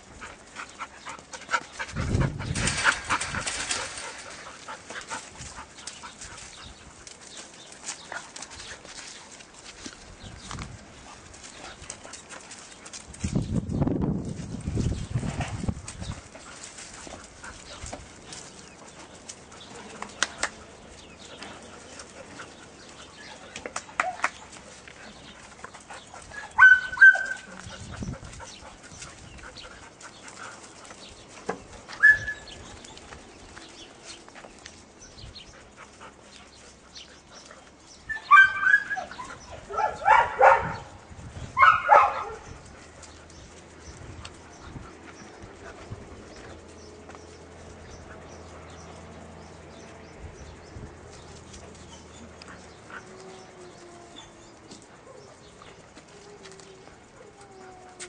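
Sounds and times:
dogs barking and yelping: 0:15.6 - 0:33.2, 0:35.4 - 0:49.7, 0:51.0 - 0:58.0.

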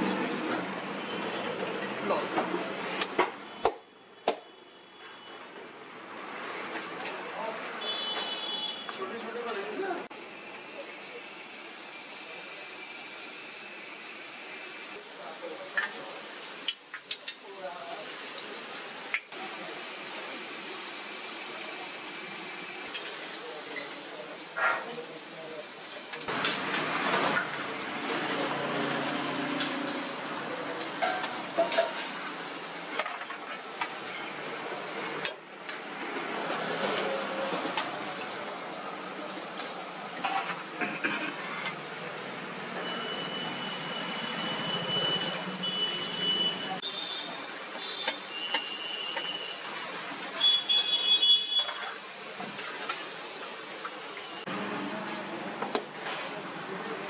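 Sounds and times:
batter sizzling in hot oil: 0:10.2 - 0:35.1.

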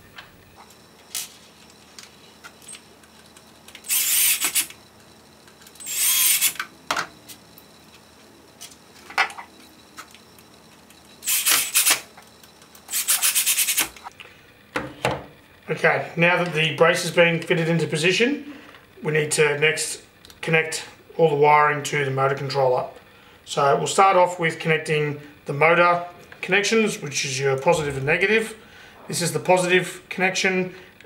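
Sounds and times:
drill pulsing rattle: 0:00.6 - 0:06.7, 0:09.6 - 0:14.1
cordless drill whining: 0:03.7 - 0:04.8, 0:05.7 - 0:06.7, 0:11.2 - 0:12.1.

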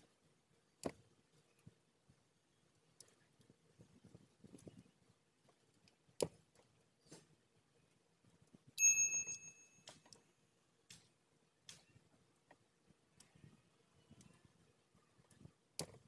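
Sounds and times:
metallic clink: 0:08.8 - 0:10.0.

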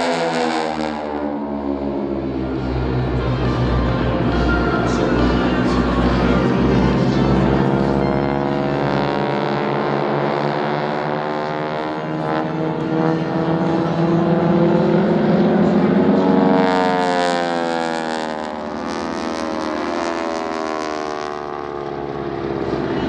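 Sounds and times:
propeller airplane engine droning: 0:00.0 - 0:23.0.

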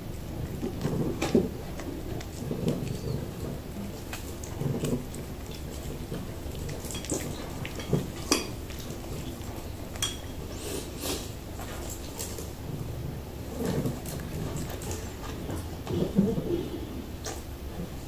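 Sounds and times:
kitten chewing: 0:00.0 - 0:16.5.

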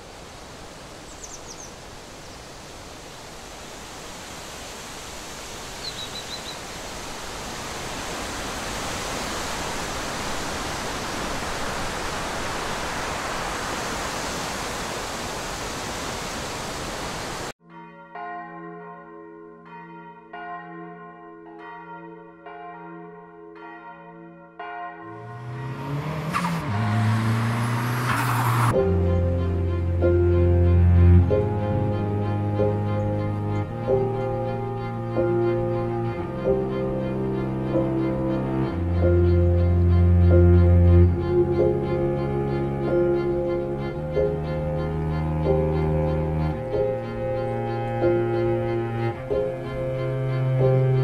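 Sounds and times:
bird-like chirps: 0:01.1 - 0:01.8, 0:05.8 - 0:06.8
low notes: 0:25.1 - 0:51.0
bell-like chords music: 0:28.8 - 0:51.0.

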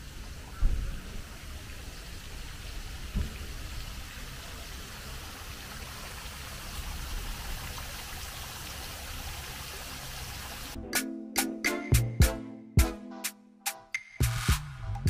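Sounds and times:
fountain water splashing: 0:00.0 - 0:10.8.

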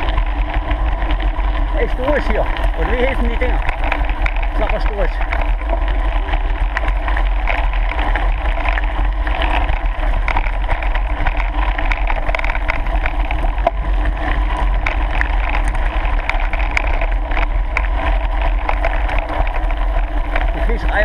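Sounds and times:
wheels rolling over gravel: 0:00.0 - 0:21.0
wind buffeting microphone: 0:00.0 - 0:21.0.

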